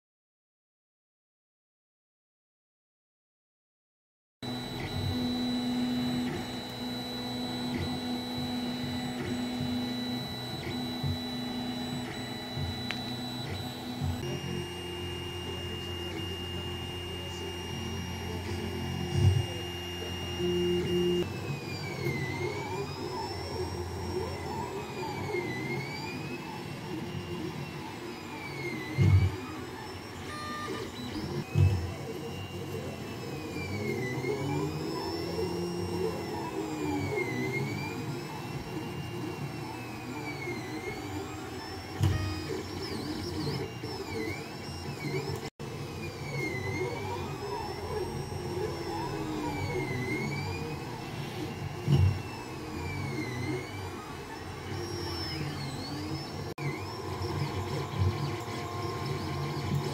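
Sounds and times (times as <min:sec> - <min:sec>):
stepper motors whining: 0:04.4 - 0:59.9.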